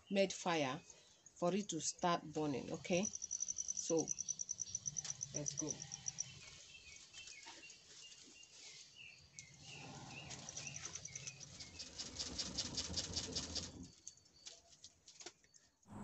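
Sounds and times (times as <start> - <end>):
crickets chirping: 2.7 - 6.4, 10.2 - 12.0.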